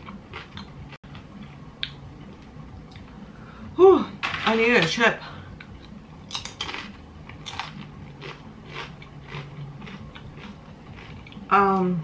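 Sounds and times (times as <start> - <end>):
tortilla chip crunching: 6.3 - 11.4.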